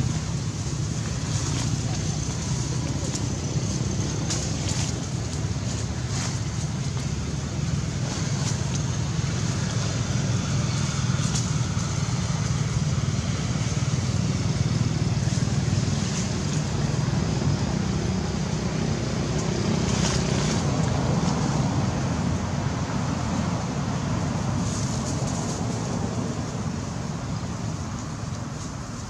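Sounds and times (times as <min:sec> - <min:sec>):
hiss: 0:23.4 - 0:29.0.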